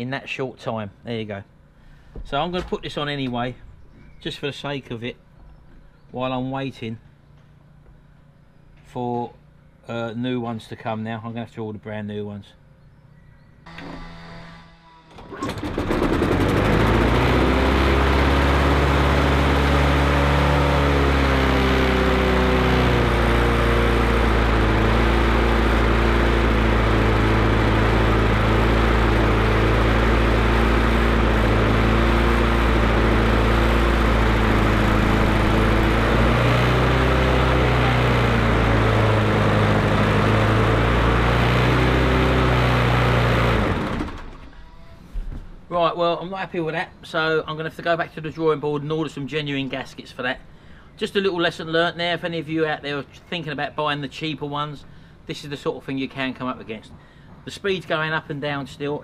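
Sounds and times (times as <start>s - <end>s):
mower engine hunting: 13.6s - 44.7s.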